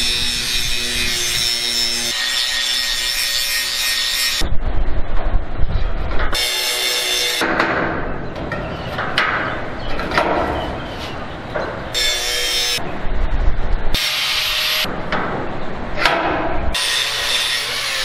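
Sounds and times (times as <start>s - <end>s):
angle grinder cutting steel pipe: 0.0s - 4.4s, 6.4s - 7.4s, 14.0s - 14.9s, 16.8s - 18.0s.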